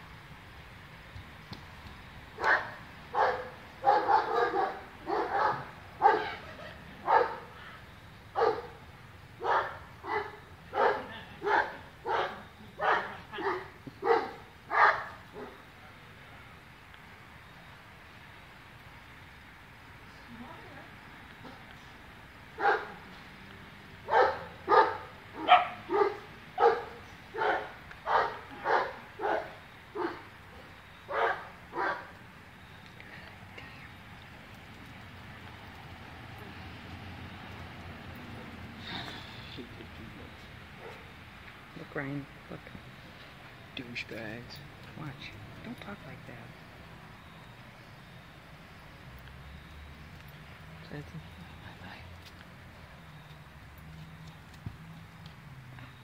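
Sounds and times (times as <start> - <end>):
dog barking: 2.4 - 6.4, 7.0 - 7.5, 8.4 - 8.8, 9.4 - 15.6, 22.6 - 23.0, 24.1 - 30.3, 31.1 - 32.1, 40.8 - 41.0.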